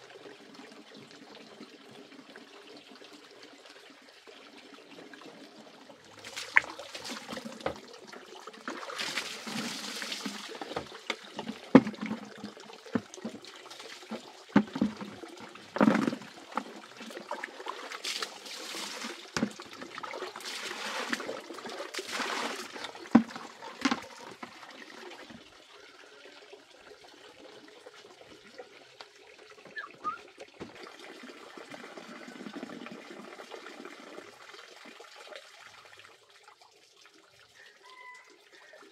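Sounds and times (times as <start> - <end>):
water trickling into a jar: 0.0 - 38.9
water splashing as poured: 6.0 - 25.5.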